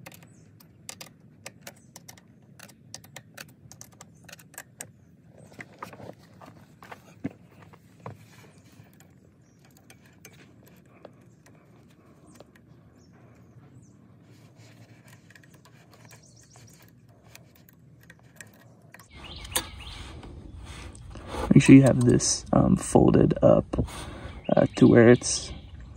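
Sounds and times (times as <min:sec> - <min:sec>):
sharp metal clicks: 0:00.0 - 0:05.1, 0:08.8 - 0:13.6
hands handling and scraping parts: 0:00.0 - 0:22.6.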